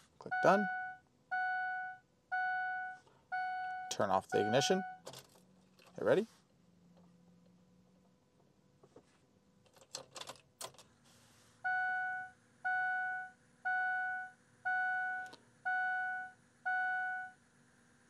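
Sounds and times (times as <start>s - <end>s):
dashboard warning chime: 0.2s - 5.0s, 11.6s - 17.4s.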